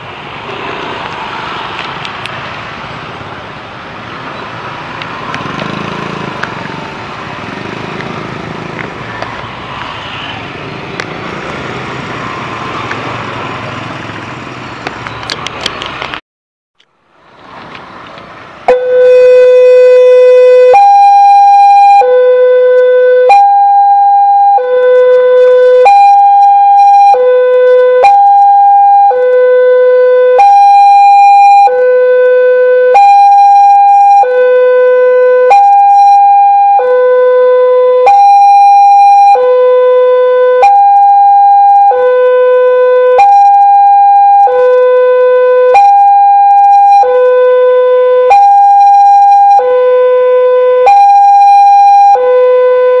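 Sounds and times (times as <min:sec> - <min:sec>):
level-crossing alarm two-tone: 0:45.7 - 0:47.1, 0:48.3 - 0:49.6, 0:50.8 - 0:52.2.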